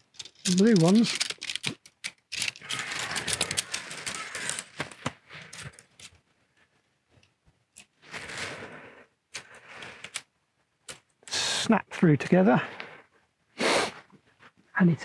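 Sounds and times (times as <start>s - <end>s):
metal tent poles rattling and clicking: 0.0s - 6.1s.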